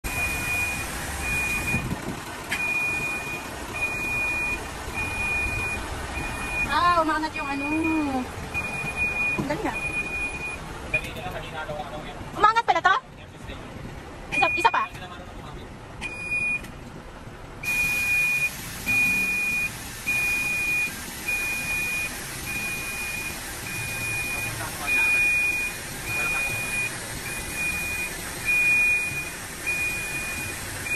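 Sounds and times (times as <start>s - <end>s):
truck warning beeper: 0.0s - 11.3s, 14.3s - 14.9s, 16.0s - 16.7s, 17.6s - 30.9s
diesel engine idling: 0.0s - 30.9s.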